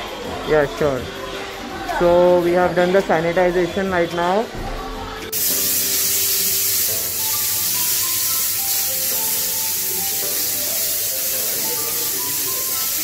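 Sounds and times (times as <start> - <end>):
sprayer hissing mist: 5.3 - 13.0.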